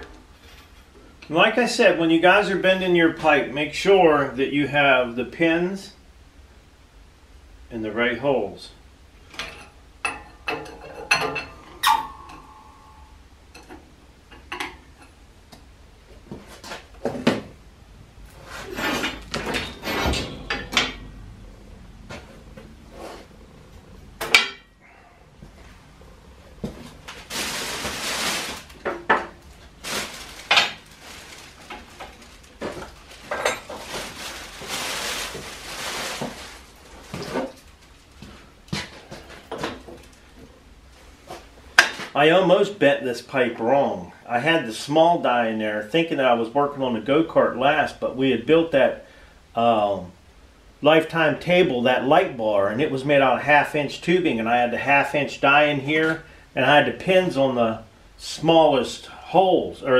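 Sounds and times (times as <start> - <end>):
steel pins clanking on metal frame: 9.4 - 13.1, 18.7 - 21.2
metal scraping: 18.4 - 24.7.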